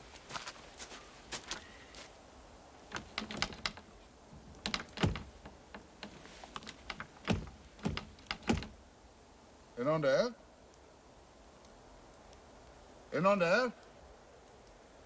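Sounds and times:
footsteps crunching in snow: 0.0 - 2.2.

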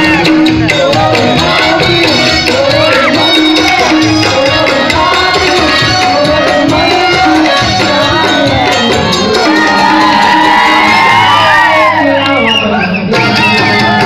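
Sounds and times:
man singing into microphone: 0.0 - 11.0
tabla and barrel drum rhythm: 0.0 - 14.0.

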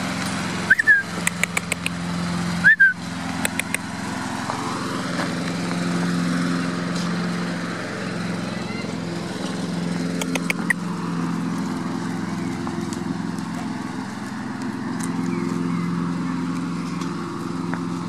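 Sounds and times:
lawn mower engine running: 0.0 - 18.0
sharp clicks: 0.7 - 2.0, 3.4 - 3.9, 10.1 - 10.8.

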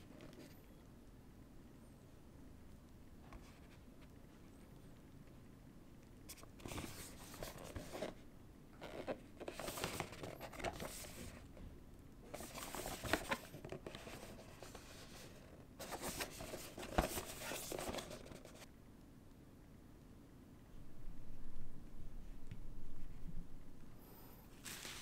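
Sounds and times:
bubble wrap rustling and crinkling: 8.8 - 11.5, 12.3 - 18.7, 24.5 - 25.0.

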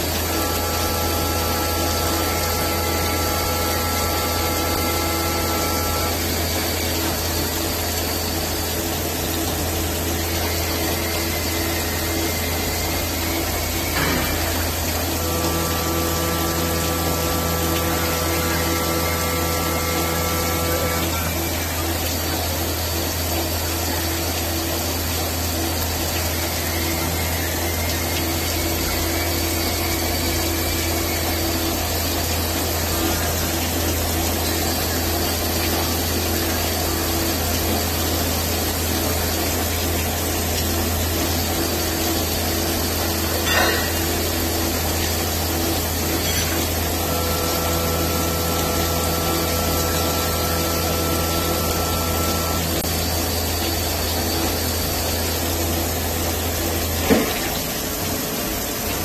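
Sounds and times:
machine hum: 0.0 - 59.0.

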